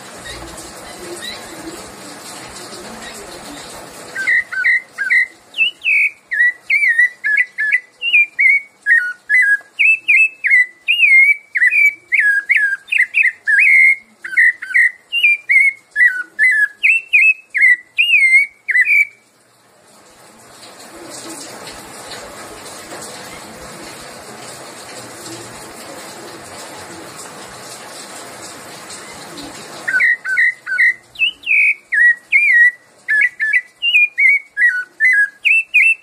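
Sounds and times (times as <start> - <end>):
faint hiss: 0.0 - 36.0
thrush singing whistled notes: 4.2 - 19.2, 29.9 - 36.0.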